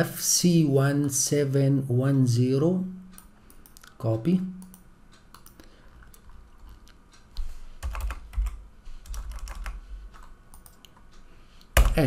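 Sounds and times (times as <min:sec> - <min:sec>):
typing on computer keyboard: 0:07.8 - 0:10.8, 0:11.7 - 0:12.0.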